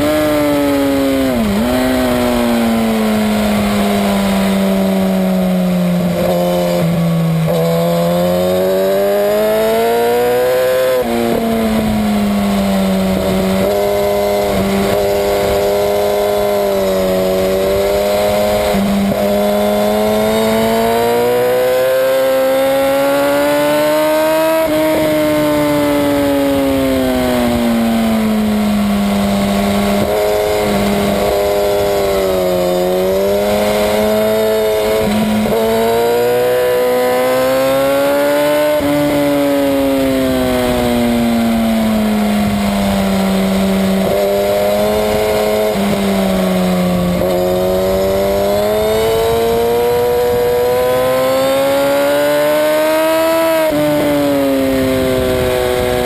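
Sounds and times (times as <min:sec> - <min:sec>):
motorcycle engine at high revs: 0:00.0 - 0:56.0.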